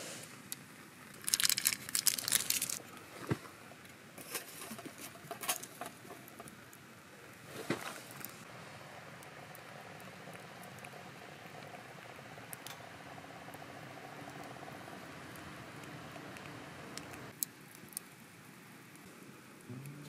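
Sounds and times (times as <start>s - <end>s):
plastic wrapper crinkling: 1.1s - 2.8s.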